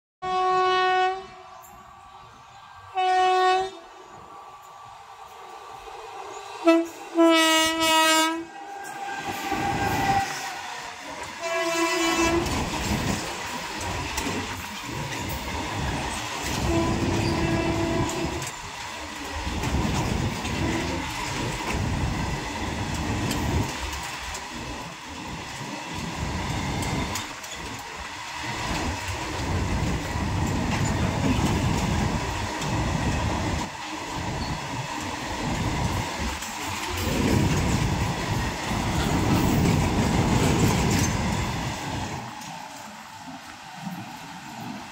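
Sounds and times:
train horn: 0.2 - 1.8, 2.8 - 4.0, 6.6 - 12.7, 16.4 - 18.5
train wheels clattering: 8.5 - 42.9.

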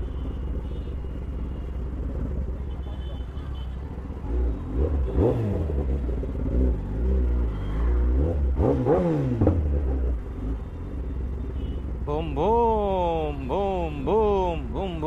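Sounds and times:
motorcycle engine revving: 3.8 - 15.0.

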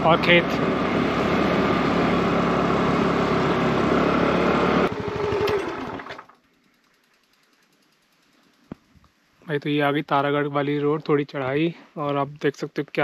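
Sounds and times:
motor scooter engine: 0.0 - 6.4.

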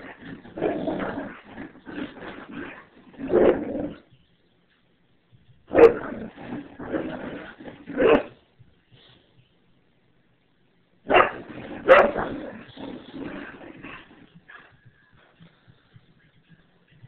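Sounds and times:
dog barking excitedly: 5.7 - 7.2, 11.1 - 12.6.

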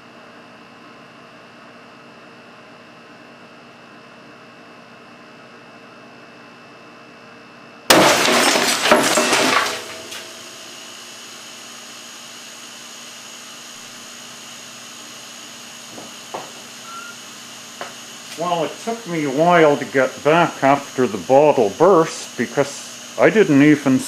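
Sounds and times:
bottle bursting with loud bang: 7.9 - 10.7
glass shattering: 7.9 - 11.0
air compressor humming: 7.9 - 24.0.

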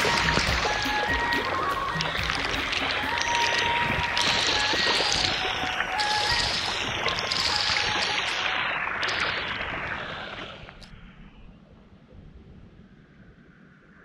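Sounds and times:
background music: 0.0 - 6.6
fountain water splashing: 0.0 - 10.9.

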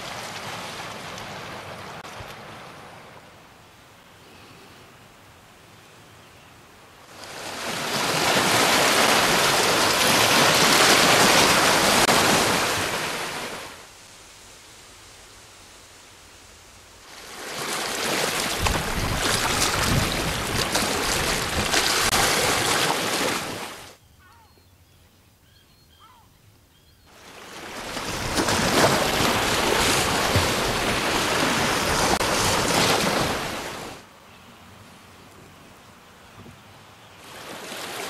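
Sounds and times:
lake waves rushing: 0.0 - 3.5, 7.0 - 24.0, 27.1 - 34.1, 37.2 - 38.0.

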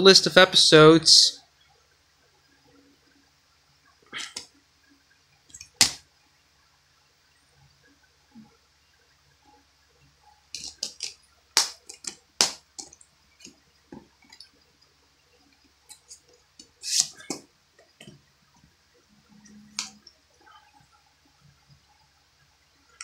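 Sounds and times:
plastic cases clicking: 10.6 - 13.0.

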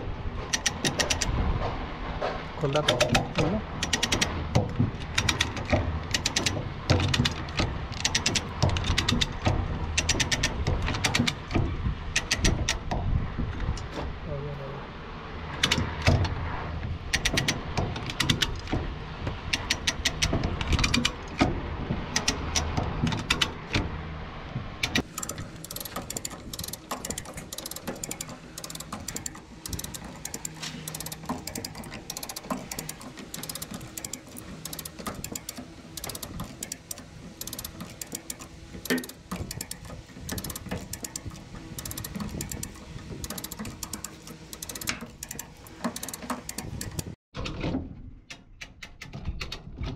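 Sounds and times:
metallic clicking and clanking: 0.4 - 1.4, 2.6 - 13.0, 17.1 - 18.9, 19.5 - 23.8, 24.8 - 47.2.

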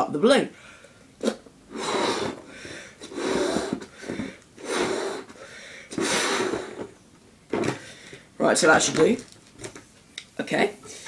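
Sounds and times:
quiet in-breaths: 0.6 - 1.1, 2.2 - 3.1, 5.2 - 6.0, 7.7 - 8.4
breath puffs into balloon: 1.7 - 6.9.

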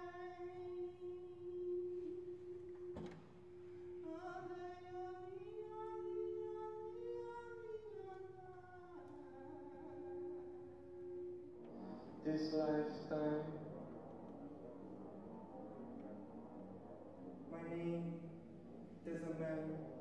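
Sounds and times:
held drone note: 0.0 - 20.0.

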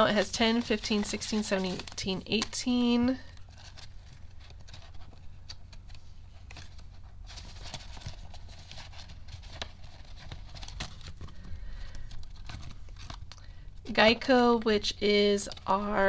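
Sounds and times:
paper bills rustling: 0.0 - 13.4.

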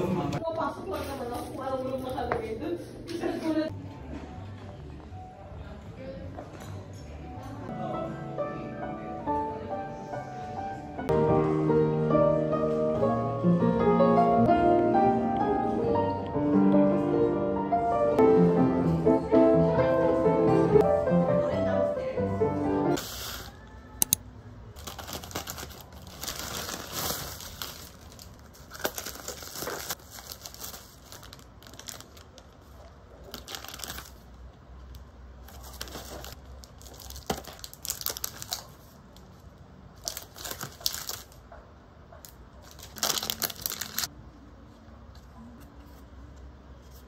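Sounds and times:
plastic packaging crinkling: 24.8 - 34.4, 35.4 - 39.3, 40.0 - 41.4, 42.2 - 44.1.

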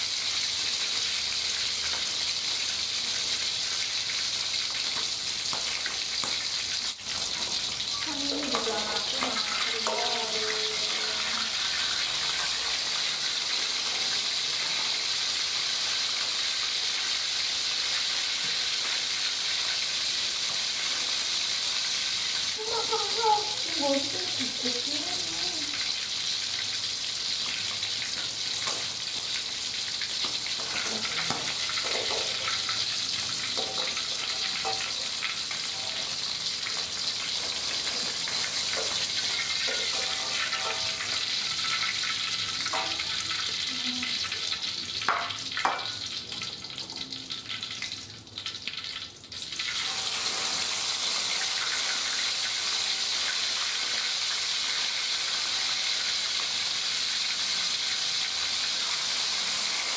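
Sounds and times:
chicken sizzling in hot oil: 0.0 - 59.9
metal spatula clinking on wok: 33.5 - 36.1, 38.7 - 41.2, 42.7 - 43.2.

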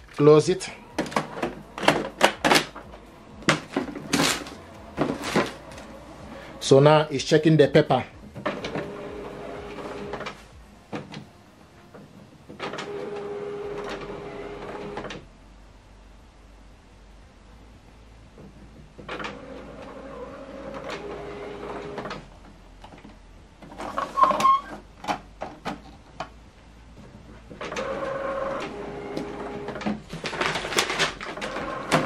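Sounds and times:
printer motors whirring: 0.0 - 7.1, 8.2 - 15.2, 19.0 - 22.3, 27.5 - 32.0
printer mechanism clicking: 0.1 - 6.0.

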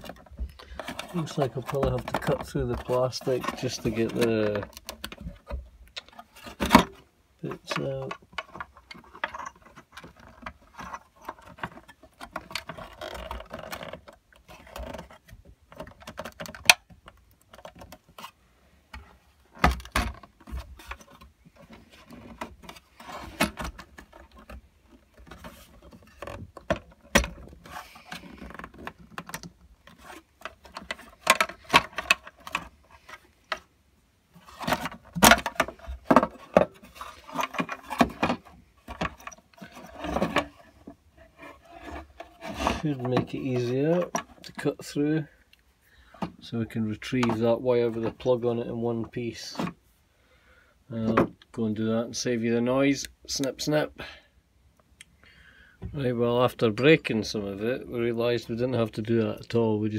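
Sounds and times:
plastic clicks and knocks: 7.6 - 18.3, 18.9 - 33.7, 34.4 - 41.0.

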